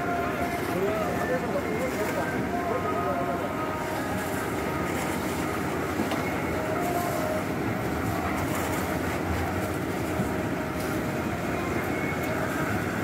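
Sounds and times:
concrete mixer rumbling: 0.0 - 13.0.

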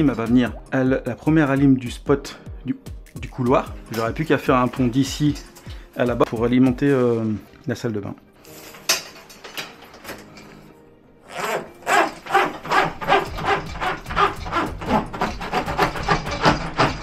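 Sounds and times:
wires rubbing through conduit: 8.4 - 17.0.

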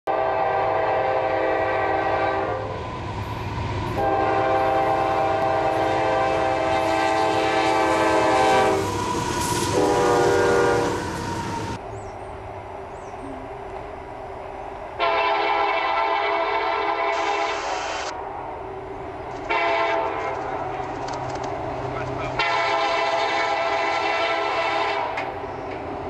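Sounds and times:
locomotive air horn blasts: 0.1 - 2.7, 4.0 - 11.2, 15.0 - 18.1, 19.5 - 20.4, 22.4 - 25.3
train rumble: 0.1 - 26.0.

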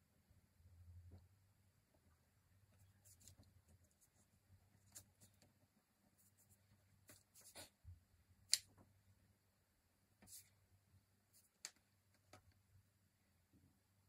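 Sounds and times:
paintbrush strokes on paper: 2.7 - 7.8, 10.2 - 10.6.

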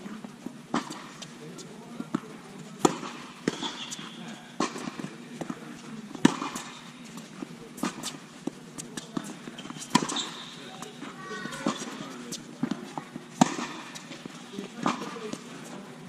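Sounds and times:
tennis balls struck and bouncing: 0.0 - 16.0
short high squeak: 9.6 - 10.6.

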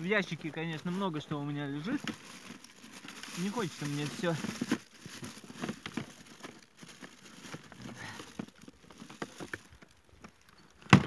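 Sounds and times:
rustling and crinkling: 0.0 - 11.0
small clicks and knocks: 4.4 - 11.0.

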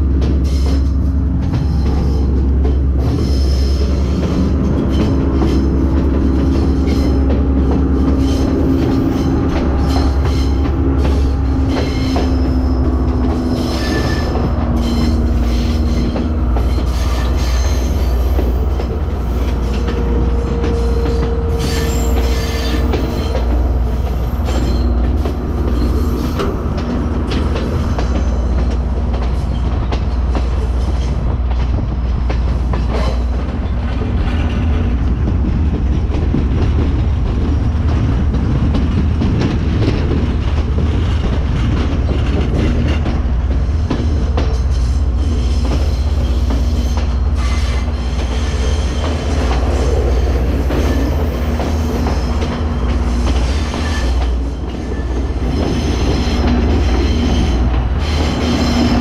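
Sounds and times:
train wheels rumbling on track: 0.0 - 59.0
high wheel squeals: 3.0 - 26.8, 44.5 - 59.0.

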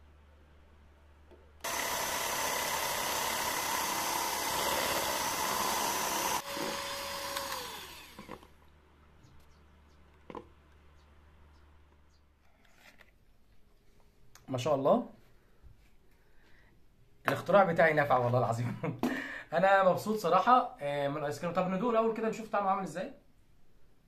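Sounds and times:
electric hand mixer whirring: 1.6 - 8.5.

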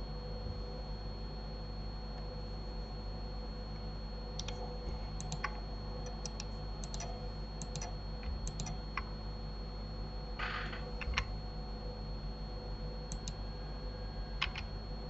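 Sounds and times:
steady low hum: 0.0 - 15.0
mouse and keyboard clicking: 4.4 - 9.1, 13.1 - 13.4, 14.4 - 14.7.

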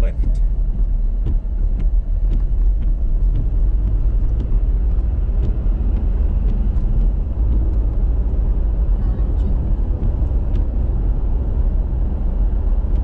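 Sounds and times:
car driving on wet road: 0.0 - 13.0.

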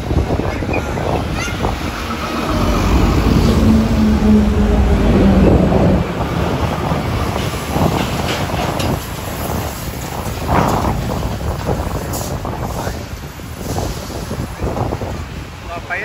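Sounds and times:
propeller aircraft flying past: 1.4 - 6.4.

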